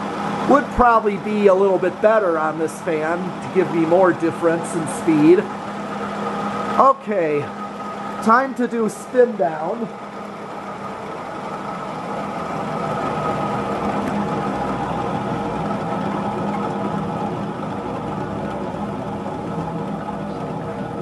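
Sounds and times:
ceiling fan mechanical hum: 0.0s - 21.0s.

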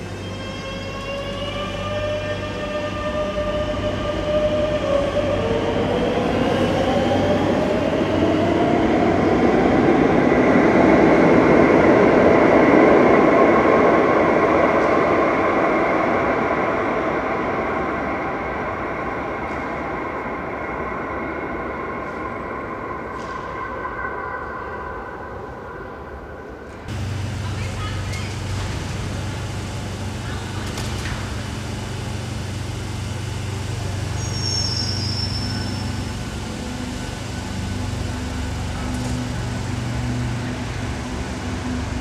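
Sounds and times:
train running noise: 0.0s - 25.6s, 26.2s - 42.0s
train traction motors whining: 26.9s - 42.0s.

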